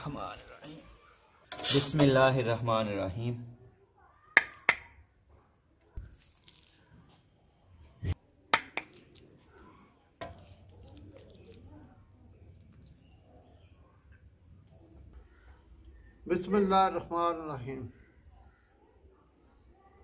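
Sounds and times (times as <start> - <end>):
metal spoon clinking on pot: 1.5 - 2.2.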